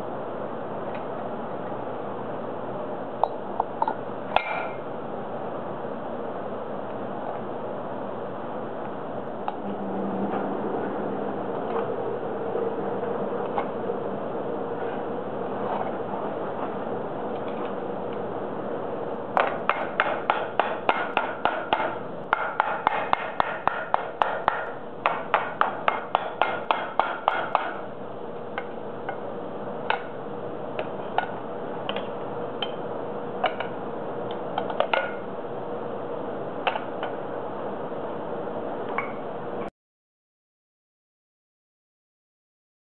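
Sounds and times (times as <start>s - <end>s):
hammer striking hot steel: 19.3s - 27.9s.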